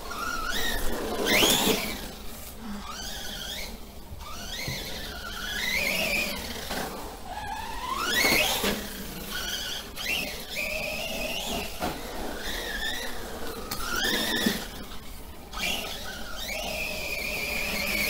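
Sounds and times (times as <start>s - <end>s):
toy truck motor whining: 0.0s - 18.0s.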